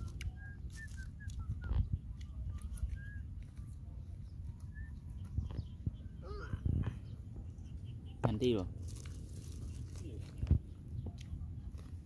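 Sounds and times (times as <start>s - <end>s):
wind on microphone: 0.0s - 7.7s
birds chirping: 0.0s - 12.0s.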